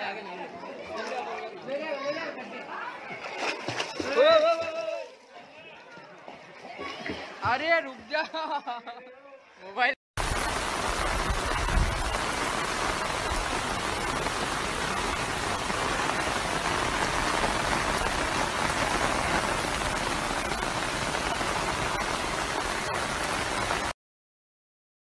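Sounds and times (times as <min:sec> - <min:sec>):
heavy rain hiss: 0:10.2 - 0:23.9.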